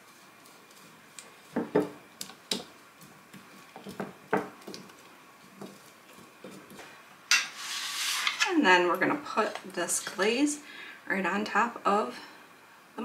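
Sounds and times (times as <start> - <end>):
spatula scraping glass bowl: 7.3 - 8.5.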